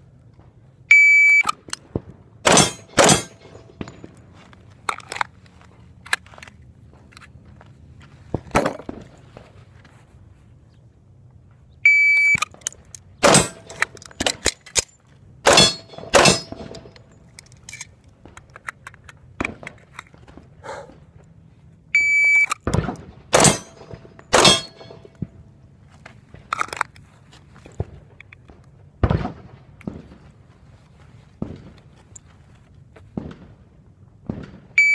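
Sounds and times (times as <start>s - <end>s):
pistol shots: 2.4s - 4.1s, 13.2s - 14.5s, 15.4s - 17.0s, 22.6s - 25.2s.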